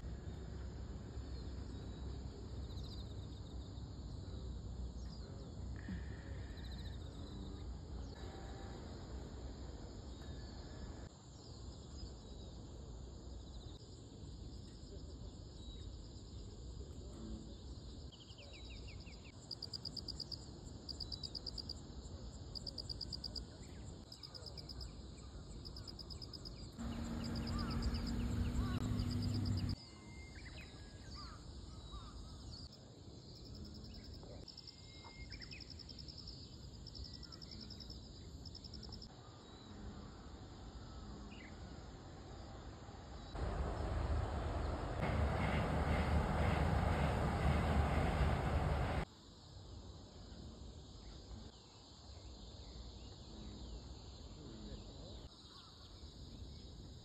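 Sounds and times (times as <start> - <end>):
insect drone: 0.0 - 57.0
pulsed insect chirping trills: 17.6 - 39.6
low hum: 26.8 - 29.8, 43.4 - 49.0.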